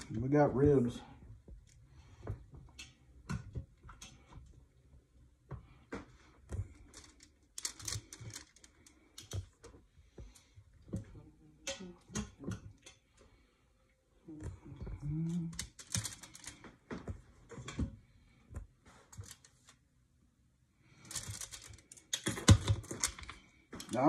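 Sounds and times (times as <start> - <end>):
low vocal sound: 14.2 - 15.6.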